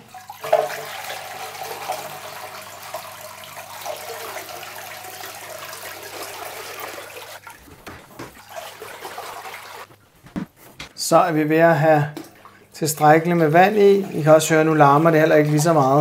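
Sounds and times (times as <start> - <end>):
water pouring and splashing: 0.0 - 10.0.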